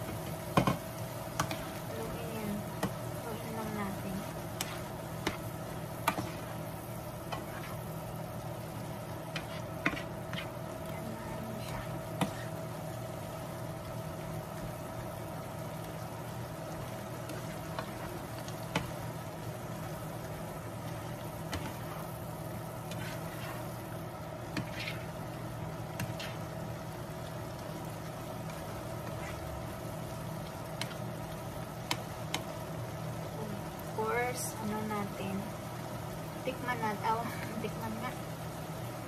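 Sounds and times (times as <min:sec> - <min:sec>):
steady low hum: 0:00.0 - 0:39.0
tongs scraping a frying pan: 0:04.5 - 0:05.4, 0:07.3 - 0:07.9, 0:09.3 - 0:10.6, 0:22.8 - 0:23.7, 0:24.5 - 0:25.3.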